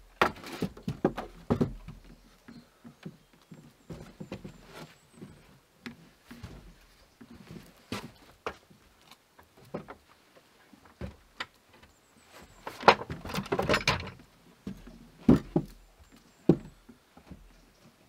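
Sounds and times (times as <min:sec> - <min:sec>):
footsteps on wooden boards: 0:00.1 - 0:18.0
wooden stool knocking and scraping: 0:00.2 - 0:02.1.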